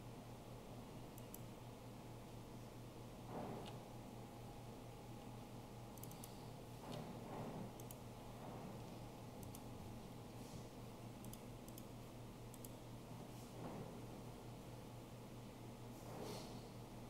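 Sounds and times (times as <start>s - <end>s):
steady low hum: 0.0s - 17.0s
computer mouse clicks: 1.2s - 1.5s, 6.0s - 7.0s, 7.8s - 8.0s, 9.4s - 9.7s, 11.2s - 12.8s.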